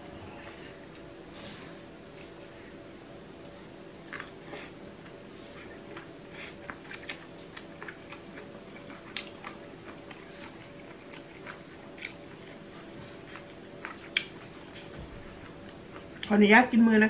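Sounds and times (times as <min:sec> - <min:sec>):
faint steady hum: 0:00.0 - 0:17.0
person chewing crunchy food: 0:04.0 - 0:16.3.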